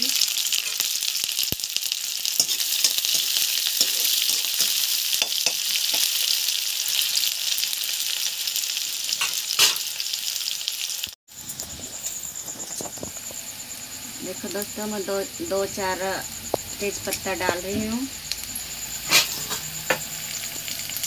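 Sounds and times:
onions sizzling in hot oil: 0.0 - 21.0
spatula scraping a pan: 2.3 - 6.2, 19.0 - 20.0.

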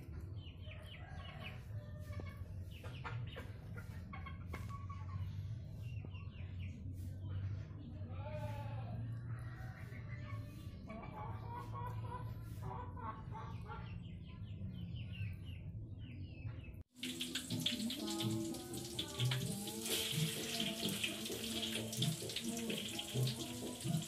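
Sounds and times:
music playing a simple tune: 16.9 - 24.0
oil sizzling in a wok: 16.9 - 24.0.

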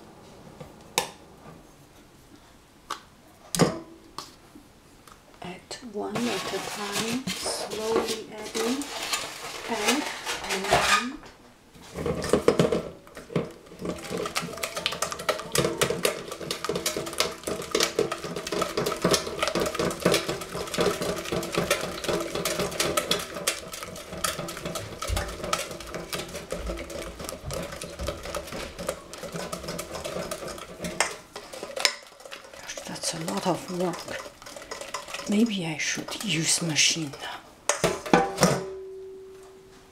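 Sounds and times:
whisk clattering against metal pan: 12.0 - 38.6.

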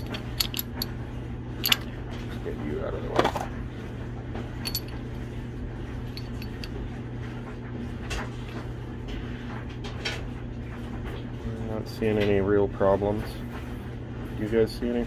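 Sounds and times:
small metal parts clinking: 0.0 - 0.9, 1.6 - 1.9, 4.6 - 5.0, 6.1 - 6.8
steady low hum: 0.0 - 15.0.

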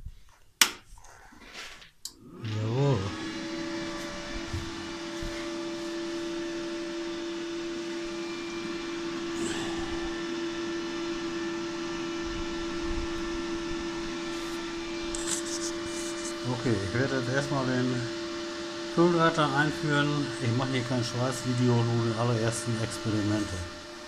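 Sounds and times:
welder cooling fan humming: 2.0 - 24.0.

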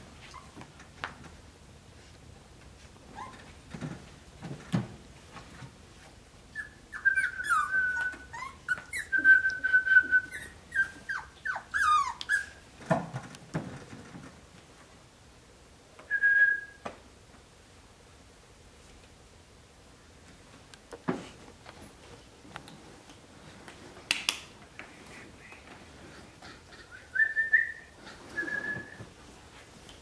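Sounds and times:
puppy whining: 0.2 - 0.6, 3.1 - 3.5, 6.5 - 12.7, 26.1 - 29.1.

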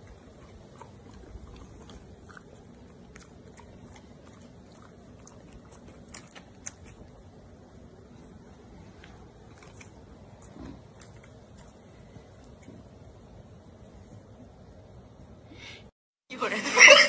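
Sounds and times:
dog chewing crunchy snacks: 0.0 - 7.2.

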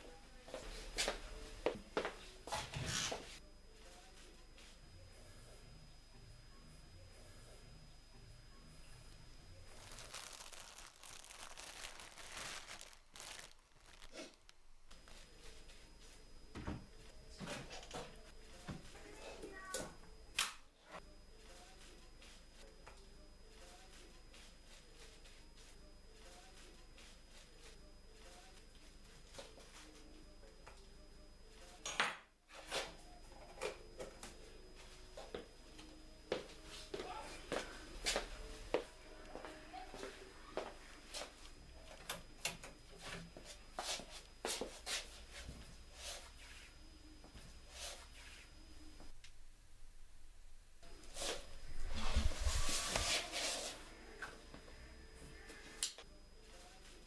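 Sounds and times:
plastic packaging crinkling: 9.6 - 15.2.

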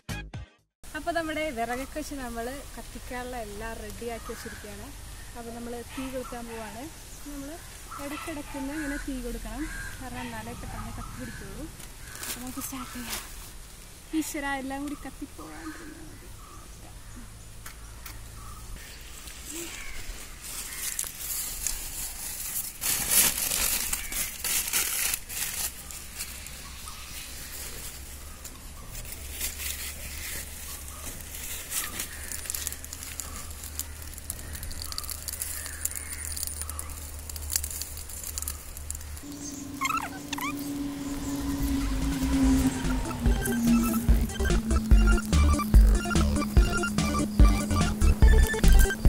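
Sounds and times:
burning fronds crackling: 0.9 - 49.0
newspaper crumpling and rustling: 12.0 - 13.5, 19.1 - 40.0.

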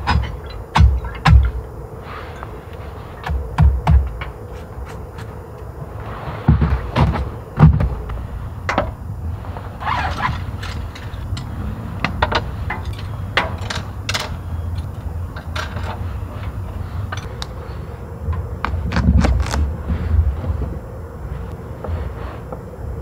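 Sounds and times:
hard objects clicking and knocking: 0.0 - 1.6, 10.0 - 17.6
steady low rumble: 0.0 - 23.0.

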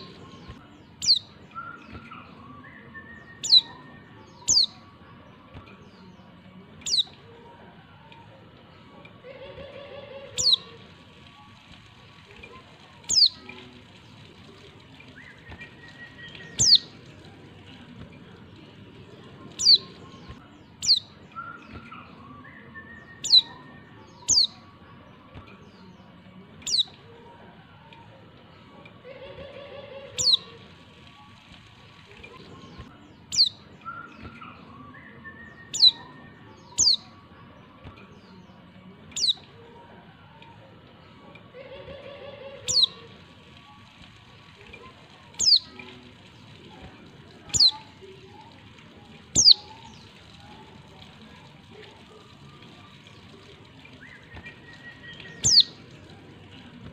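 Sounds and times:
bird high downward calls: 0.0 - 4.9, 9.7 - 10.8, 13.0 - 13.4, 14.5 - 17.0, 19.5 - 24.7, 29.5 - 30.6, 32.7 - 37.1, 39.2 - 39.4, 41.9 - 43.1, 45.4 - 45.7, 47.5 - 47.9, 49.4 - 50.4, 53.9 - 55.9
white-eye bird calls: 49.4 - 49.7, 55.4 - 55.8.

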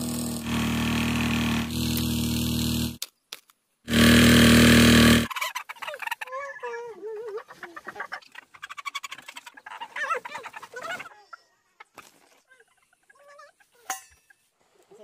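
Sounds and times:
chickens squawking and clucking: 5.3 - 13.9.

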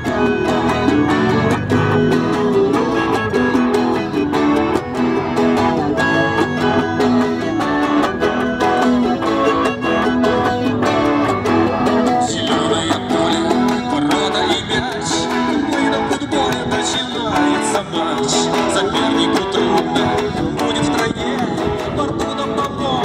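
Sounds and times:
melodica melody: 0.0 - 17.2
bright high instrument part: 0.0 - 17.7
balalaika and electric guitars strumming: 0.0 - 23.0.

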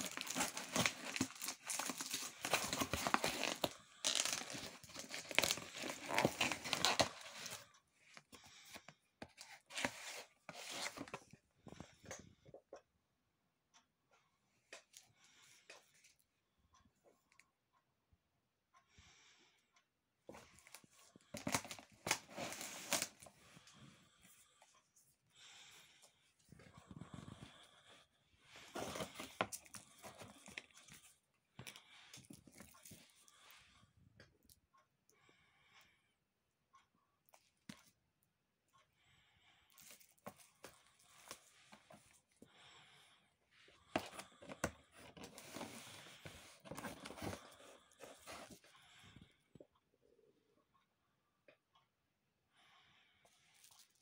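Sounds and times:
packaging tearing and crinkling: 0.0 - 7.5
paper and packaging rustling: 0.0 - 11.3, 20.3 - 23.7, 28.6 - 31.1, 43.9 - 48.7.

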